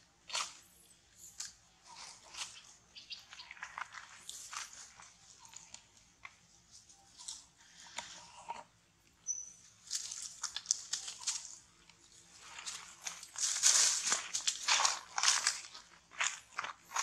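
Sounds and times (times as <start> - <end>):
dry leaves crunching and rustling: 9.8 - 17.0.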